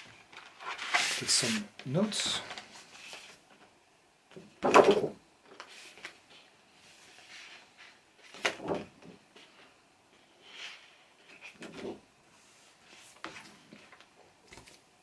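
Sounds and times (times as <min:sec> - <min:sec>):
paper rustling: 0:00.3 - 0:03.6, 0:12.8 - 0:14.8.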